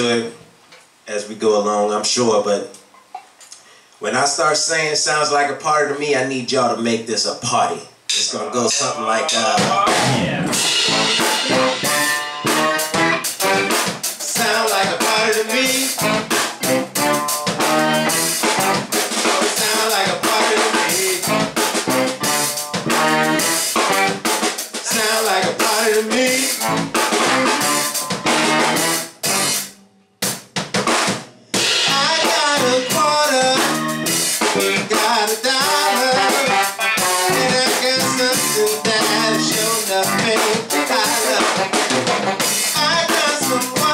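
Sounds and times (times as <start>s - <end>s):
keyboards: 8.1s - 30.0s, 31.4s - 43.9s
drum kit: 8.1s - 43.9s
trombone: 9.8s - 29.8s, 31.6s - 43.9s
tenor saxophone: 10.1s - 19.0s, 20.6s - 24.3s, 26.1s - 29.8s, 35.6s - 43.9s
electric guitar: 31.8s - 43.9s.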